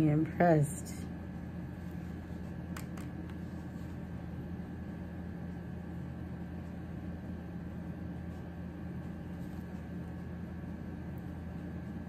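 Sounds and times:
room hum and hiss: 0.0 - 12.0.

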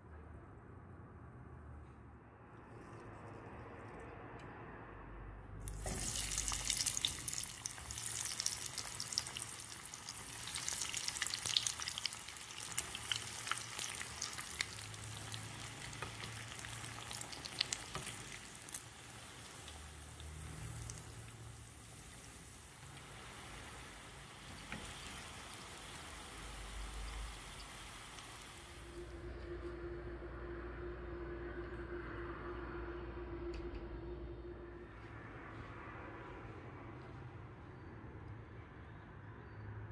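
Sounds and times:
food deep-frying in oil: 5.6 - 28.9.

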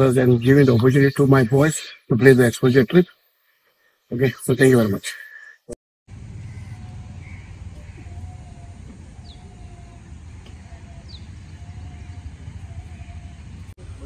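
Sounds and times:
faint bird chirps: 0.1 - 5.7, 6.3 - 13.6
steady low rumble: 6.1 - 14.0.

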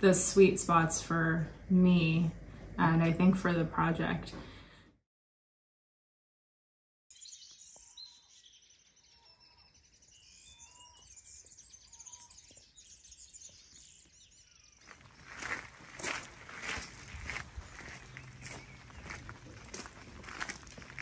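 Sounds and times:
whistled bird notes: 7.1 - 15.5
birds chirping and singing: 7.1 - 21.0
faint outdoor background noise: 7.1 - 21.0.

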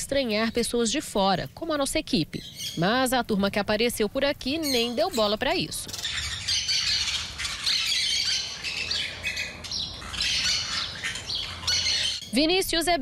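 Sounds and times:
parakeets chattering and squawking: 4.5 - 12.4.

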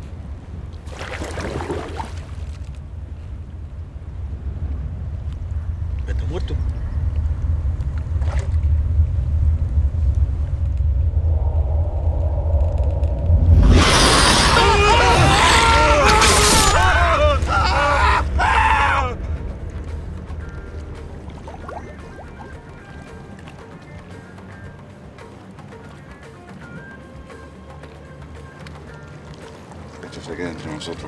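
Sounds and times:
wind over sea water: 0.0 - 15.1
low drone: 2.6 - 25.6
quick rising swoops: 6.9 - 17.1.

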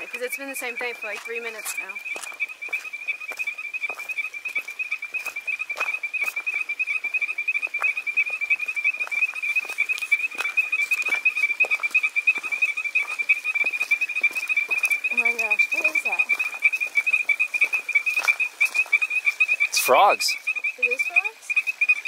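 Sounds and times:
frogs trilling: 0.0 - 22.0.

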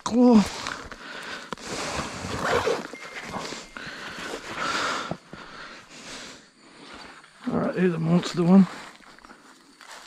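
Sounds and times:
backpack rustling: 1.6 - 5.6
moving through dry leaves: 7.9 - 10.0.

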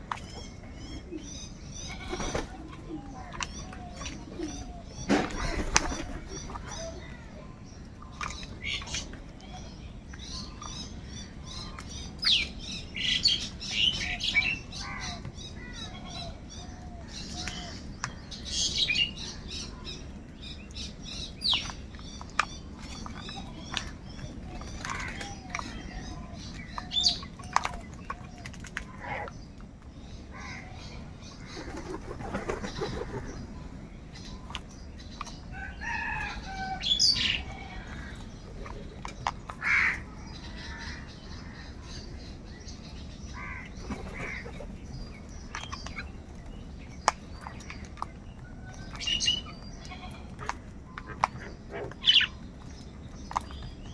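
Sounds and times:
crows cawing: 39.6 - 40.0, 43.4 - 44.4.

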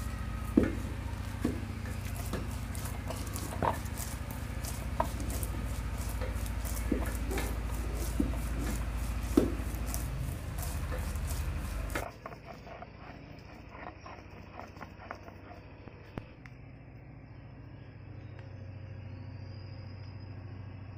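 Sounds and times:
stone roller scraping on slab: 0.0 - 15.9.

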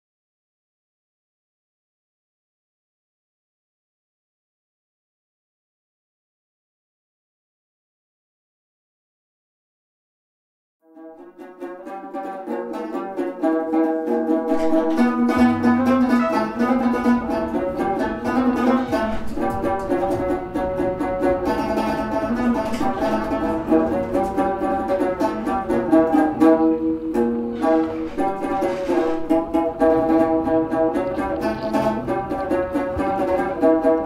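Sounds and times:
instrumental background music: 10.8 - 34.0.

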